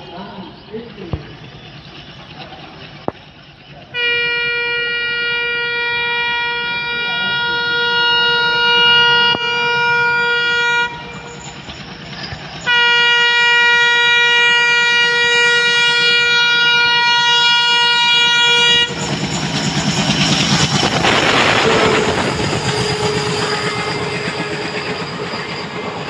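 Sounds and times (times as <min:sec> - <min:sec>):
train running rumble: 0:00.0 - 0:26.0
train horn blast: 0:03.9 - 0:11.2, 0:12.6 - 0:19.0, 0:20.8 - 0:25.2.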